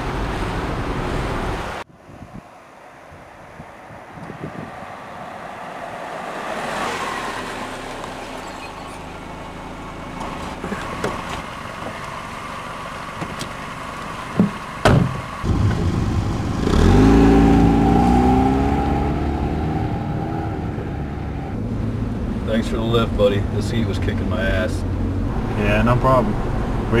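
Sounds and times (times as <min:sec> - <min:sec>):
car engine running: 0:07.6 - 0:17.1
car door shutting: 0:10.2 - 0:12.0, 0:14.3 - 0:15.8.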